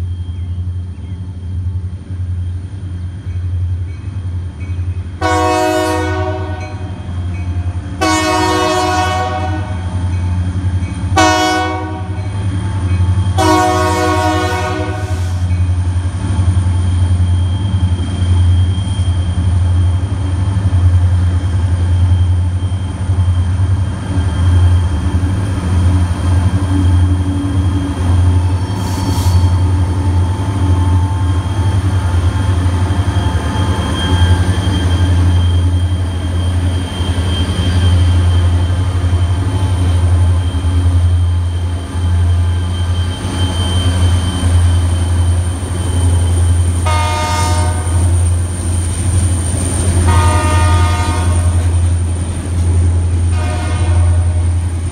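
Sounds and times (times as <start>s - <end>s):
diesel locomotive rumble: 0.0s - 54.9s
heavy train passing: 0.0s - 54.9s
locomotive air horn: 5.2s - 7.0s, 8.0s - 9.8s, 11.2s - 12.2s, 13.4s - 15.5s, 46.8s - 48.1s, 50.0s - 51.8s, 53.3s - 54.6s.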